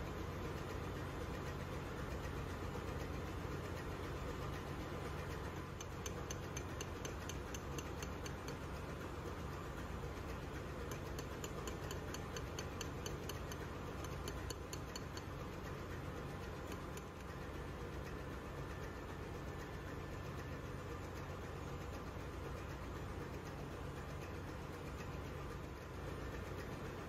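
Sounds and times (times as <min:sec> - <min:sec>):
low machinery hum: 0:00.0 - 0:27.0
rapid metallic hammer taps: 0:05.3 - 0:08.9, 0:10.6 - 0:18.2.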